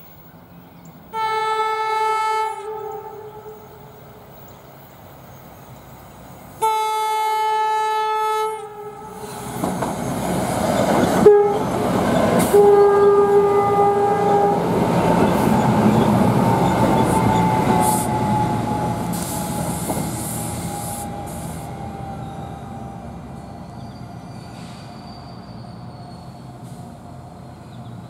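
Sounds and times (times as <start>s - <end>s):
train wheels rumbling on track: 0.0s - 28.0s
train horn blasts: 1.1s - 4.0s, 6.6s - 9.6s, 11.2s - 14.8s, 17.1s - 19.4s.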